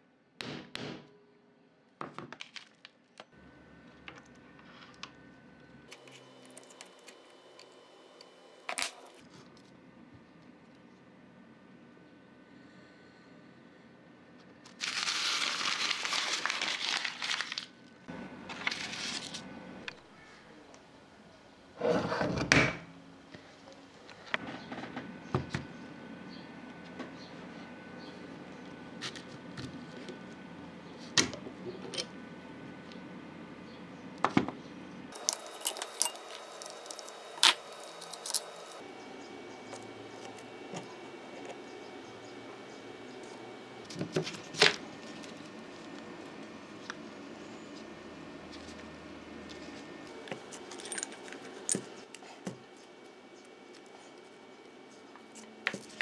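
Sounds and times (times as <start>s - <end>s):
paper rustling and crinkling: 14.6s - 17.8s, 18.5s - 19.5s, 35.2s - 38.8s.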